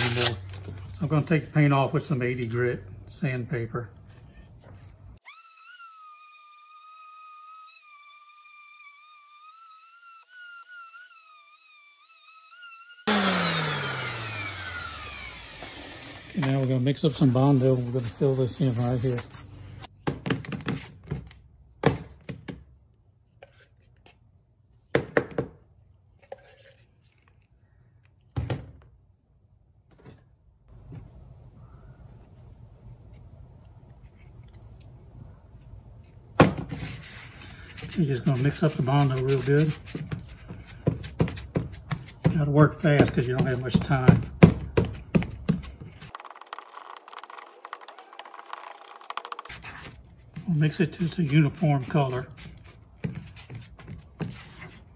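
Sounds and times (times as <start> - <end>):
spreader scraping paper plate: 36.7 - 44.2, 45.6 - 54.9.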